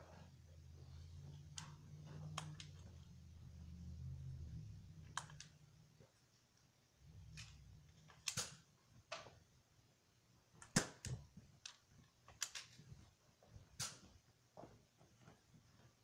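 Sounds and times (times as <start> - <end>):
toy blasters firing clicks: 8.2 - 8.6.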